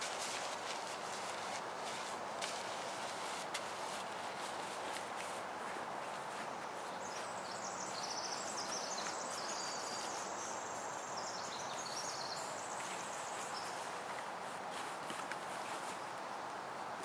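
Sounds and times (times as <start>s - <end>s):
steady outdoor hiss: 0.0s - 17.0s
songbird trilling song: 6.3s - 13.9s.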